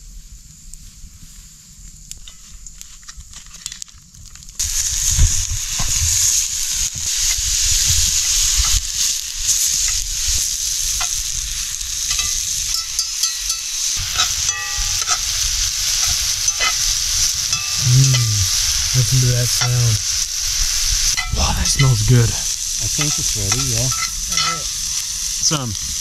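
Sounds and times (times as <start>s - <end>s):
meat sizzling in skillet: 0.4s - 26.0s
spoon scraping pan: 12.1s - 20.0s, 22.9s - 24.7s.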